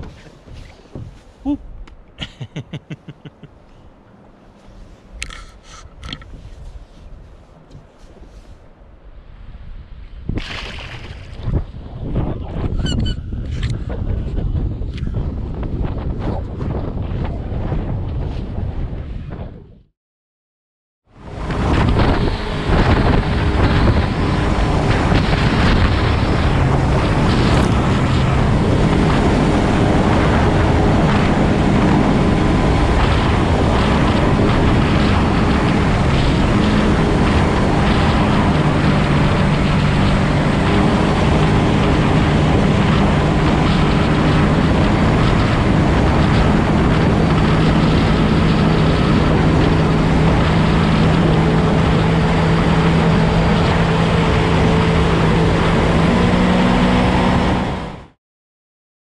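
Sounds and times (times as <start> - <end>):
rush of wind and water spray: 5.1 - 13.0, 21.2 - 58.0
boat jet motor running: 21.2 - 58.2.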